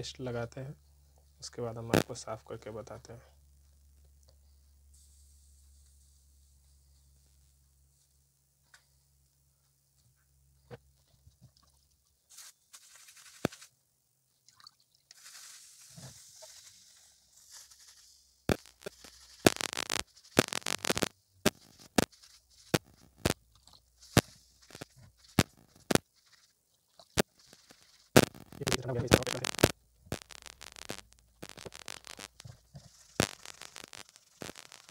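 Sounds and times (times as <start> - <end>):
sharp crackles and clicks: 1.9 - 2.3, 12.8 - 13.7, 15.1 - 34.9.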